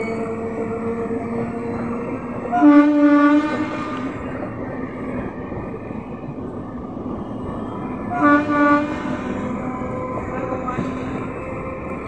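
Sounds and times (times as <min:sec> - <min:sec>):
train coaches rolling past: 0:00.0 - 0:12.0
train horn: 0:02.4 - 0:04.2, 0:08.1 - 0:09.3.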